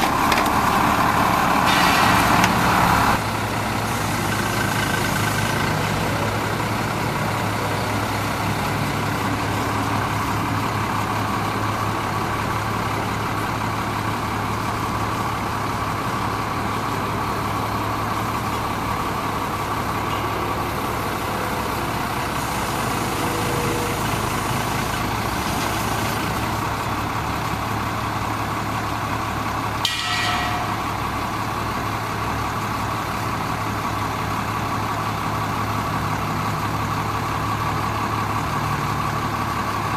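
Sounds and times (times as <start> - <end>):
diesel engine running: 0.0 - 39.9.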